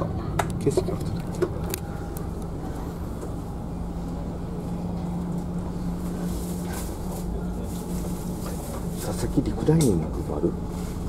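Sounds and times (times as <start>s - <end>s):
constant hum: 0.0s - 11.0s
ferry engines droning: 0.0s - 11.0s.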